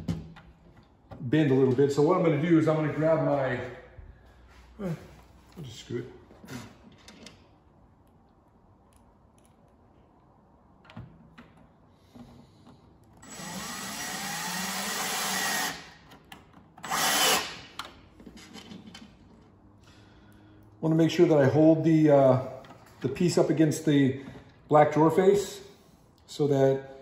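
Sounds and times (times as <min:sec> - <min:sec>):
cordless drill driving a screw: 0:13.2 - 0:16.0, 0:16.8 - 0:17.8.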